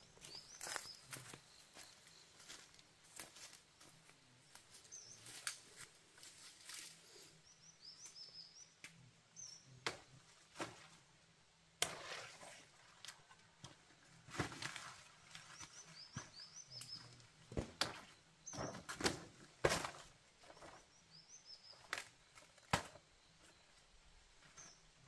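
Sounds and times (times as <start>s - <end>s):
faint bird chirps: 0.0s - 2.8s, 6.7s - 9.8s, 15.4s - 17.3s.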